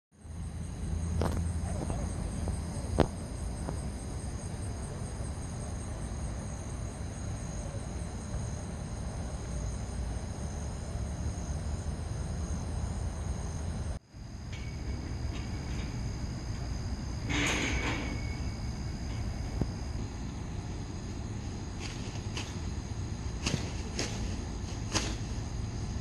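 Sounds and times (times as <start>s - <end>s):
crickets trilling: 0.2s - 26.0s
low outdoor rumble: 0.2s - 26.0s.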